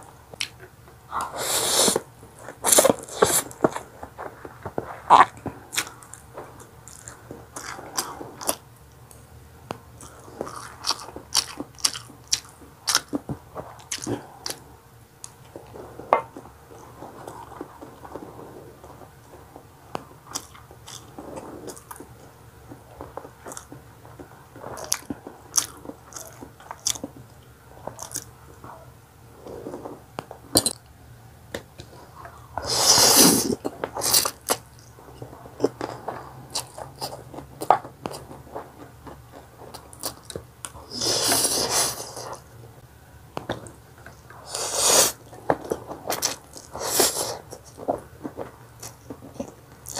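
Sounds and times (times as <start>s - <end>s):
wet chewing and smacking: 0.3s - 14.6s, 19.9s - 28.8s, 33.4s - 42.4s
loud noodle slurp: 1.2s - 3.6s, 32.6s - 34.4s, 40.9s - 42.4s, 44.4s - 45.2s, 46.2s - 47.4s.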